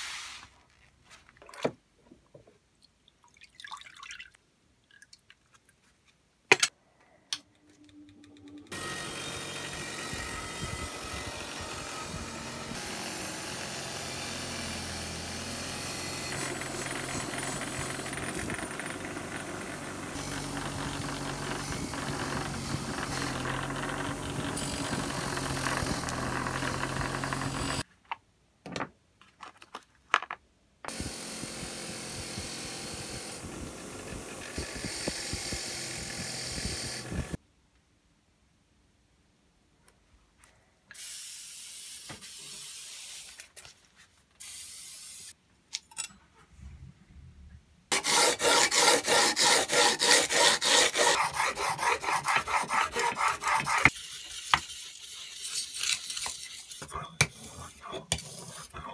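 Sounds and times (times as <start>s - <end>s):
bench grinder grinding metal: 8.7s - 27.8s, 30.9s - 37.4s, 47.9s - 56.7s.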